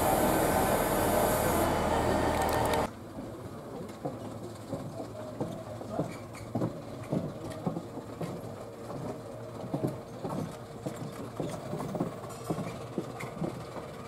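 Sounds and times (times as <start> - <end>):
diesel train engines idling: 0.0 - 2.9.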